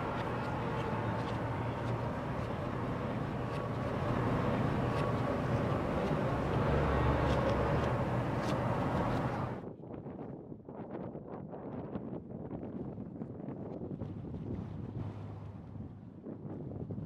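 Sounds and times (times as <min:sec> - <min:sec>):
traffic hum: 0:00.0 - 0:09.6
vehicle low rumble: 0:00.0 - 0:09.6, 0:14.1 - 0:16.2.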